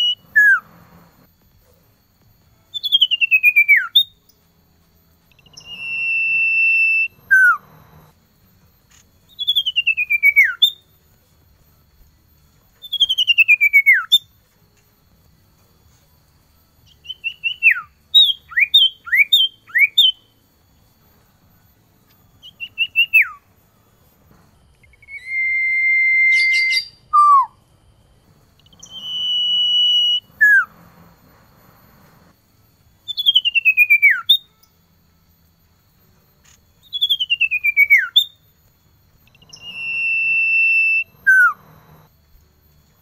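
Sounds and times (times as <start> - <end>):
bird singing whistled phrases: 0.0 - 1.2, 2.7 - 4.2, 5.3 - 8.1, 9.3 - 10.8, 12.8 - 14.2, 16.9 - 20.3, 24.8 - 27.6, 28.6 - 30.9, 33.1 - 34.5, 36.8 - 38.4, 39.3 - 42.1.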